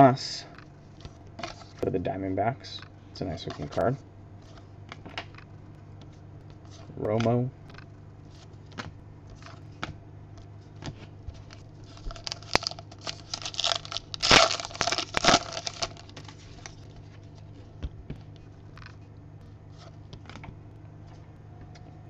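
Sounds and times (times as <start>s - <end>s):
plastic wrapper tearing and crinkling: 11.4s - 16.8s.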